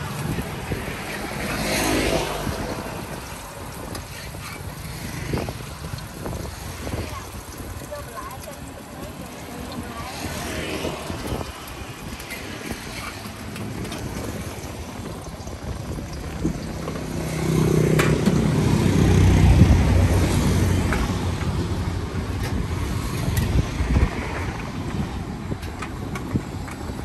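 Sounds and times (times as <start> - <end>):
street noise: 0.0 - 27.0
vehicle engine passing: 16.4 - 22.0.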